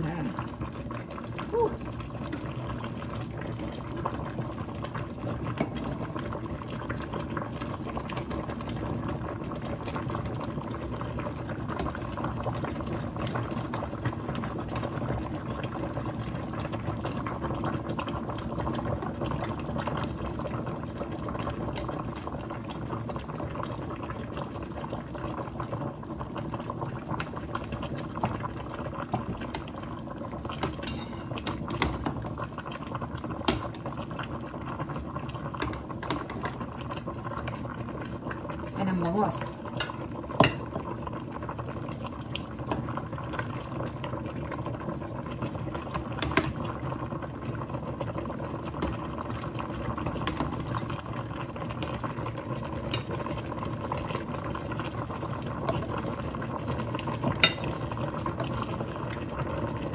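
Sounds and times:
broth boiling and bubbling: 0:00.0 - 0:59.9
metal ladle clinking on pot: 0:30.8 - 0:31.4, 0:39.8 - 0:40.7, 0:57.4 - 0:57.8.

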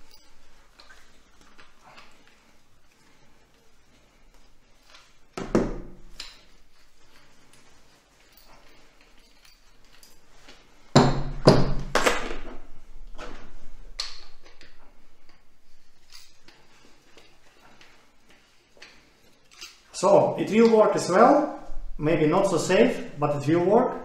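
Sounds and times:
metal parts clinking on table: 0:19.4 - 0:19.9.

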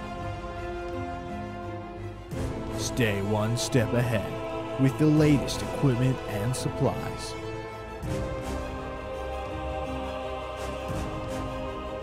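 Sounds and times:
ambient music with held notes: 0:00.0 - 0:12.0.

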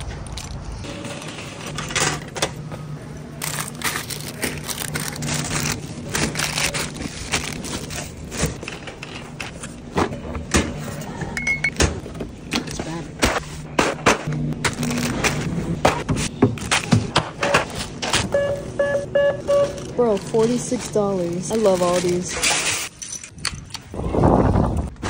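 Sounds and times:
plastic packaging crinkling: 0:03.4 - 0:08.6, 0:19.8 - 0:22.7.

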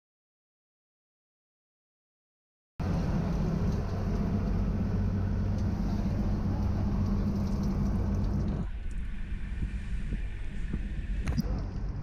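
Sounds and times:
boat engine humming: 0:02.8 - 0:12.0
wind and water wash: 0:02.8 - 0:12.0.

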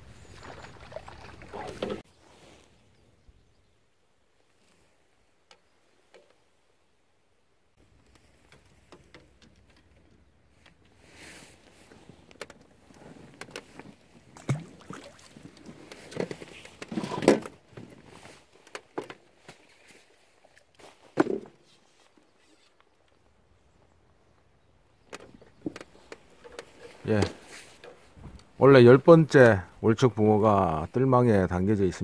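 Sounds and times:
irregular clicks and knocks: 0:25.1 - 0:28.5.

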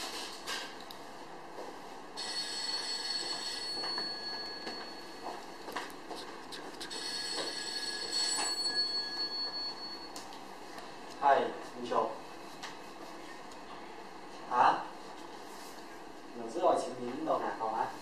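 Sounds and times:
high-pitched ringing tone: 0:02.2 - 0:05.5, 0:06.8 - 0:10.3.

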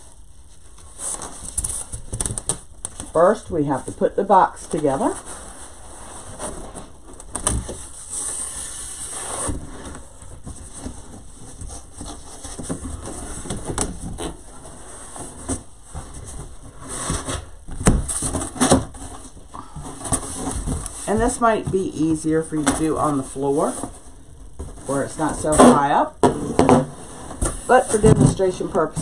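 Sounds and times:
cardboard scraping and rustling: 0:00.6 - 0:03.9, 0:04.7 - 0:29.0.

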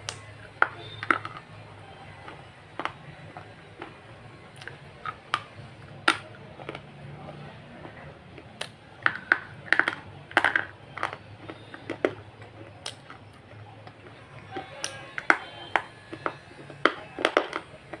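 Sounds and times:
mouth smacks while chewing: 0:11.0 - 0:15.0.

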